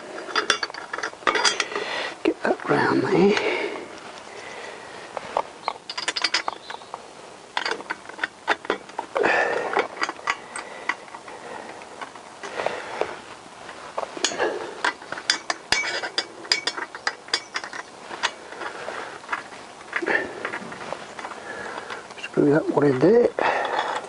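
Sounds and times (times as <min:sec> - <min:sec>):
metal exhaust pipes knocking: 0:14.2 - 0:22.3.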